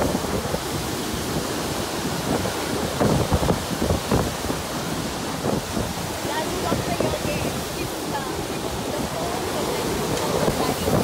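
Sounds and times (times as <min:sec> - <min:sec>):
heavy driving rain: 0:00.0 - 0:11.0
wind buffeting microphone: 0:00.0 - 0:11.0.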